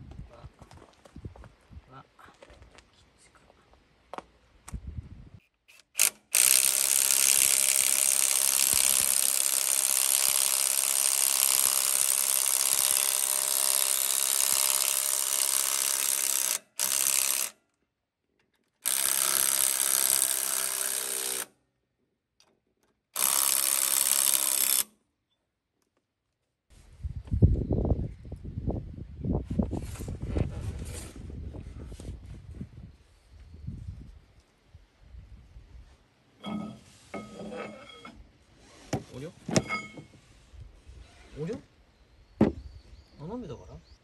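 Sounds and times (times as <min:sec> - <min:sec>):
power wrench running: 0:05.7 - 0:17.6, 0:18.8 - 0:21.5, 0:23.2 - 0:24.9.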